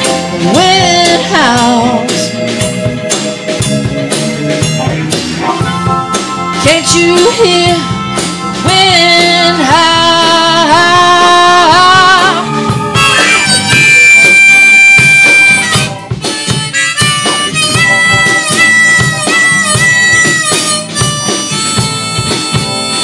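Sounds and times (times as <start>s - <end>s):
acoustic guitar: 0.0s - 23.0s
drums: 0.0s - 23.0s
electric bass: 0.0s - 23.0s
keyboard: 0.0s - 23.0s
blues harmonica solo: 2.1s - 23.0s.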